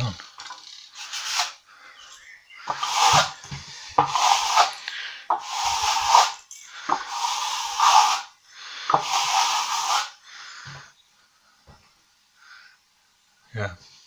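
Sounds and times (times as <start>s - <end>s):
plastering float scraping plaster: 0.5s - 1.6s, 2.7s - 10.2s.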